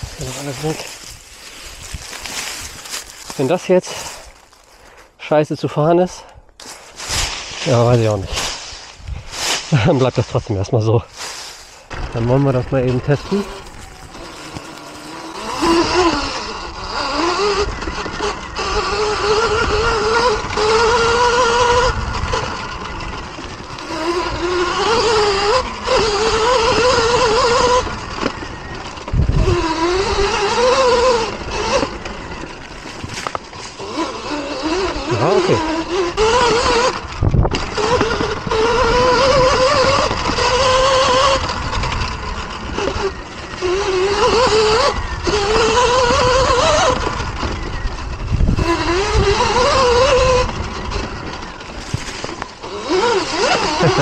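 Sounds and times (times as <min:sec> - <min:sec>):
tyre and wind noise: 0:00.0 - 0:05.2, 0:05.9 - 0:54.0
electric motor whine: 0:11.2 - 0:54.0.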